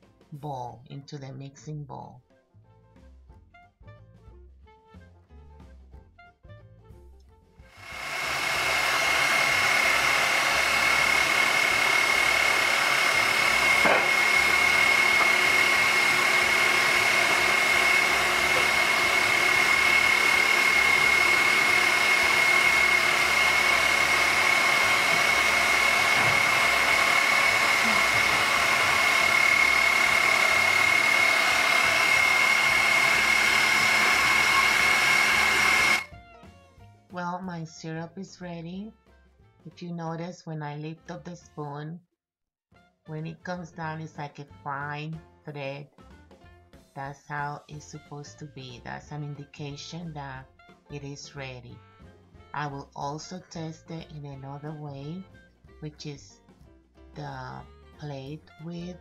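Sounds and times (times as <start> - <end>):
stand mixer motor whining: 7.7 - 36.1.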